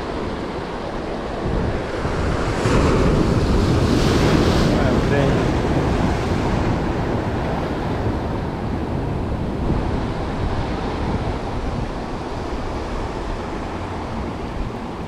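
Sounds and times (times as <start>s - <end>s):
surf breaking over rocks: 0.1s - 15.0s.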